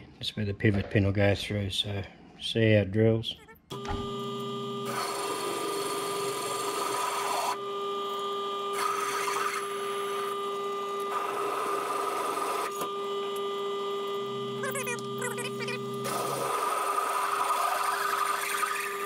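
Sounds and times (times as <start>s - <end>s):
drill cutting through steel: 3.7s - 19.0s
milling machine spindle hum: 3.7s - 19.0s.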